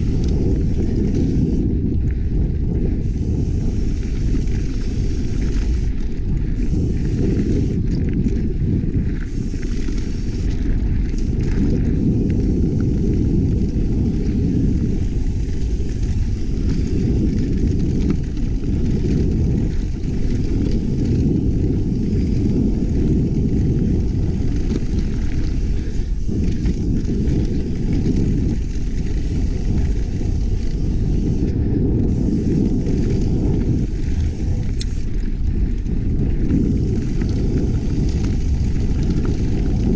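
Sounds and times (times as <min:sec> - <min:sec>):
bike tyre and rattle noise: 0:00.0 - 0:39.9
heavy wind buffeting microphone: 0:00.0 - 0:39.9.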